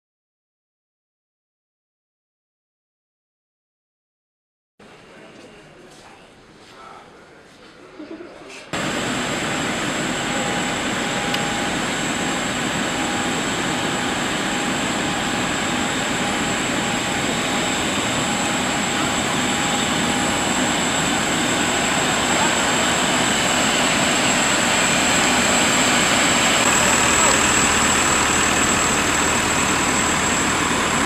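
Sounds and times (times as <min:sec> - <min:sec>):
high whine: 0:08.8 - 0:31.0
lower hum: 0:08.8 - 0:31.0.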